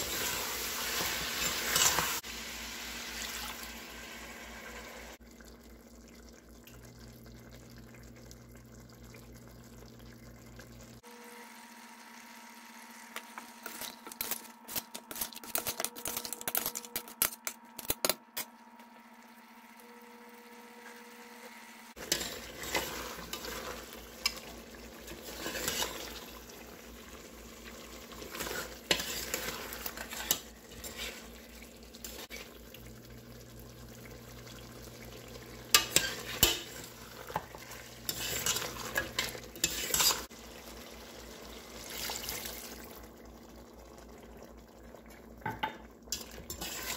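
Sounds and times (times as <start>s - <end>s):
food bubbling and sizzling: 0.0s - 17.7s, 18.6s - 46.9s
spatula scraping and knocking pot: 22.0s - 24.4s, 25.1s - 26.1s, 28.2s - 31.3s, 35.7s - 40.3s
meat crackling in oil: 22.0s - 44.1s.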